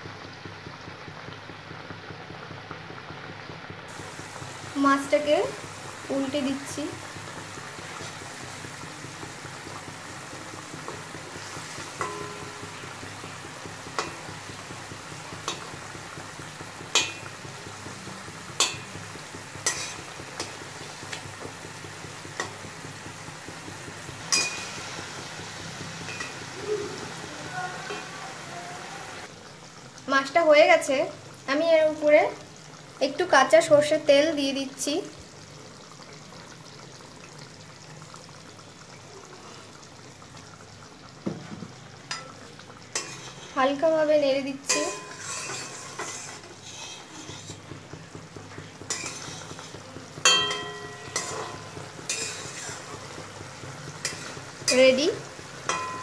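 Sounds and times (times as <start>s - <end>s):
curry simmering and bubbling: 0.0s - 56.0s
gravy sizzling in a pan: 0.0s - 56.0s
metal spoon knocking on pan: 11.9s - 14.8s, 16.8s - 20.6s, 24.2s - 25.2s, 25.9s - 26.6s, 44.7s - 52.8s, 54.0s - 56.0s
metal spatula scraping a pan: 19.6s - 20.5s, 42.9s - 43.7s, 44.7s - 47.7s, 48.9s - 53.2s, 54.0s - 55.0s.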